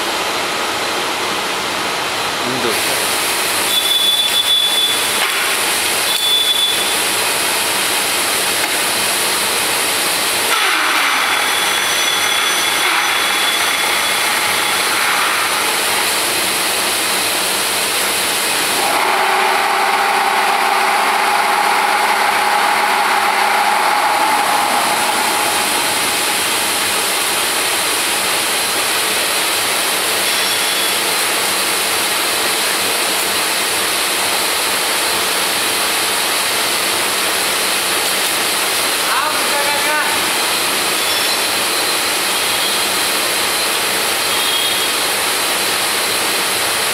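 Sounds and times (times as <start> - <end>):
drill machine humming: 10.2 - 29.8
whining tone: 10.5 - 16.1, 18.8 - 27.8.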